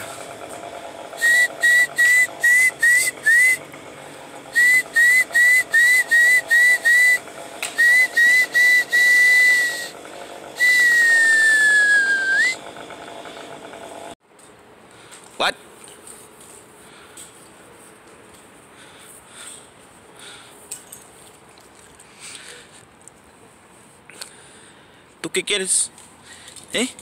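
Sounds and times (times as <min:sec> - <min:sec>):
person whistling: 0:01.2 - 0:03.6, 0:04.5 - 0:10.0, 0:10.6 - 0:12.6.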